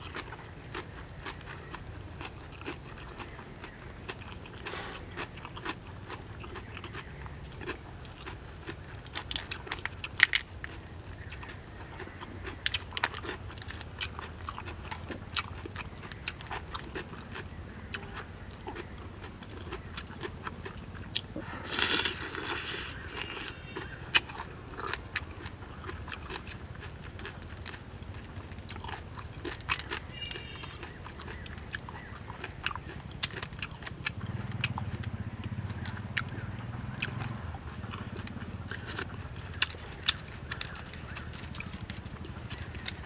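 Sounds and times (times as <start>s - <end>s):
chewing and crunching: 0.0s - 43.0s
shrimp shells cracking: 38.8s - 43.0s.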